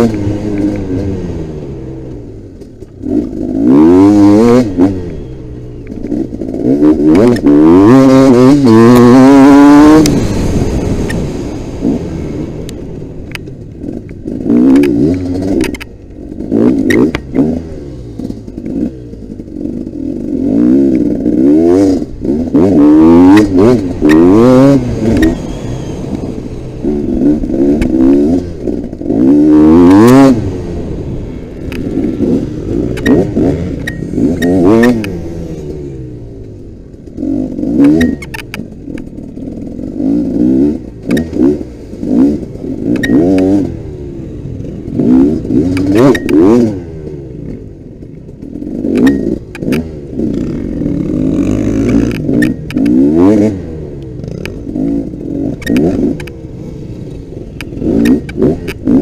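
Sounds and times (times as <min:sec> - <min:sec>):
motocross bike engine revving: 0:00.0 - 0:59.0
bike knocks and clicks: 0:37.6 - 0:39.2, 0:42.9 - 0:43.6, 0:45.6 - 0:46.6, 0:48.8 - 0:50.4, 0:54.3 - 0:56.4.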